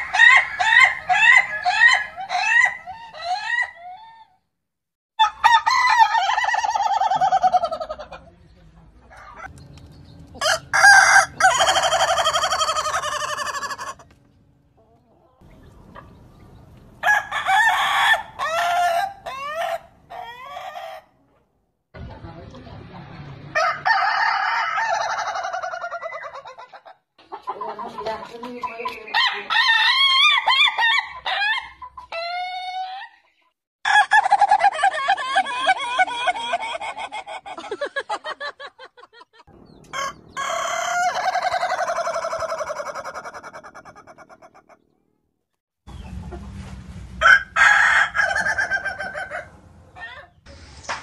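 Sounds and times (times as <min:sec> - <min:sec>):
roosters crowing: 0:00.0 - 0:04.4, 0:05.2 - 0:08.2, 0:10.2 - 0:14.3, 0:16.8 - 0:21.2, 0:23.5 - 0:26.9, 0:28.6 - 0:33.2, 0:33.8 - 0:44.8, 0:47.1 - 0:50.4.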